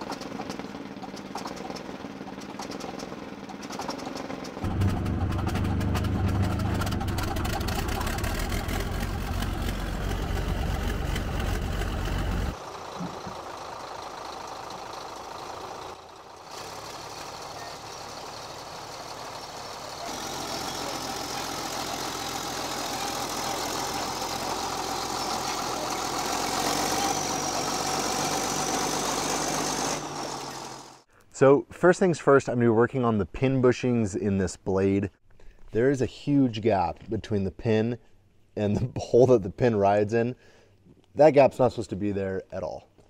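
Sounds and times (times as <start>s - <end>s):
bulldozer moving over gravel: 0.0s - 31.0s
bulldozer diesel engine running: 0.0s - 31.1s.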